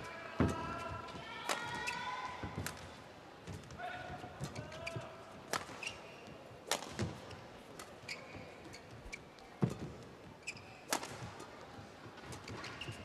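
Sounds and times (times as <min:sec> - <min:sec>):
racket hitting shuttlecock: 0:04.4 - 0:06.0, 0:06.6 - 0:08.0, 0:10.9 - 0:11.5
shoe squeaks on court floor: 0:05.7 - 0:06.4, 0:08.0 - 0:11.0, 0:12.5 - 0:13.0.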